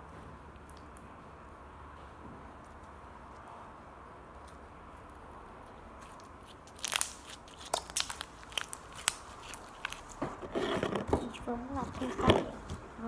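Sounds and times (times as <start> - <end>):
slime crackling and popping: 6.0 - 10.2.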